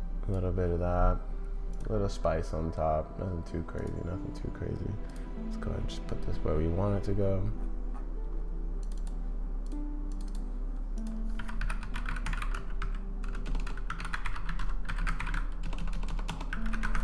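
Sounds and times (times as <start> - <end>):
quiet background music: 0.0 - 17.0
computer keyboard typing: 8.8 - 9.2, 10.1 - 10.4, 11.0 - 17.0.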